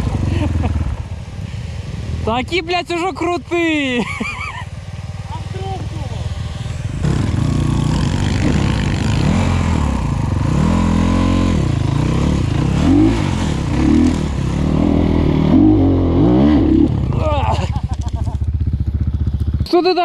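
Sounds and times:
dirt bike engines running: 0:00.0 - 0:20.0
dirt bike throttle blips: 0:04.0 - 0:20.0.

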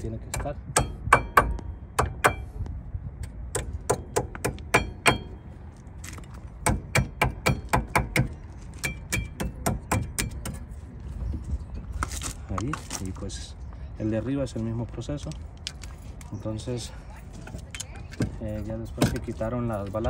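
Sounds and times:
sharp metallic taps: 0:00.3 - 0:02.5, 0:03.2 - 0:05.4.

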